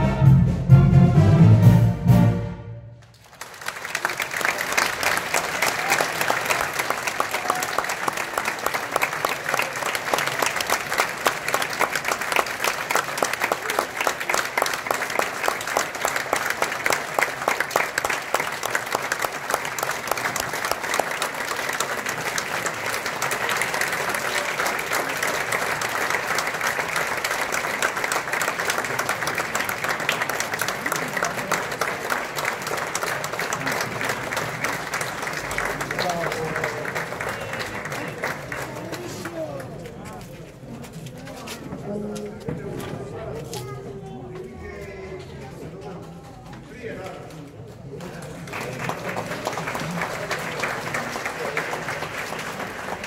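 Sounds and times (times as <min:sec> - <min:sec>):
brass band chord: 0:00.0 - 0:03.0
audience applause: 0:03.0 - 0:40.9, 0:47.3 - 0:53.0.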